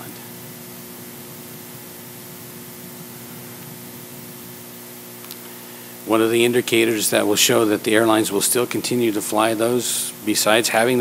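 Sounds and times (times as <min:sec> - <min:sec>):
faint low hum: 0:00.0 - 0:11.0
steady hiss: 0:00.0 - 0:11.0.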